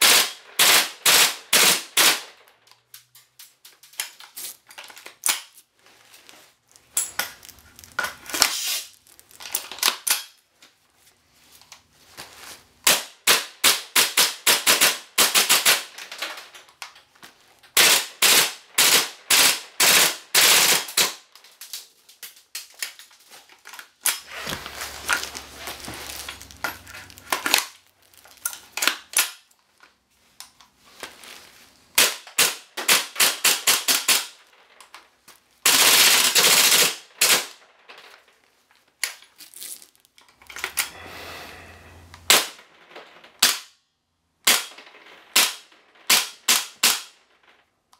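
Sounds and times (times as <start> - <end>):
airsoft rifle shots: 0.0 - 2.4, 17.8 - 21.2.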